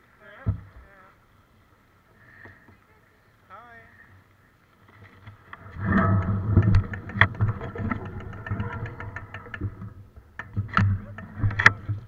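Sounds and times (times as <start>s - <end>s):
bike clicking and rattling: 4.8s - 12.0s
bike tyres rumbling on trail: 4.8s - 12.0s.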